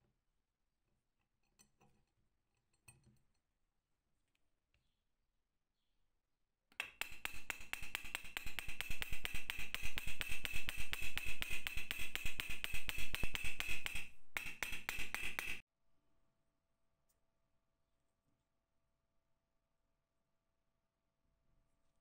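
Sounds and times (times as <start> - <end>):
hammer blows on metal: 6.8 - 15.6.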